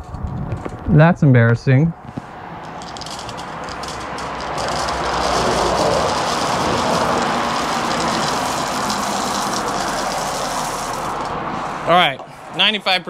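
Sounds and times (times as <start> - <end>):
beans rattling in metal colander: 2.7 - 11.4.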